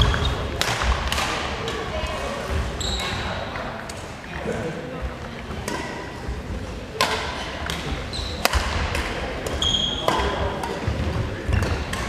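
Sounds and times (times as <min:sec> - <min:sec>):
racket striking shuttlecock: 0:00.1 - 0:01.4, 0:07.0 - 0:10.9.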